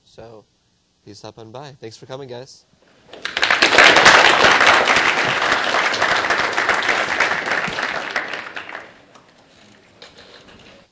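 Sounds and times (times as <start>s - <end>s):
audience applauding: 3.0s - 9.9s.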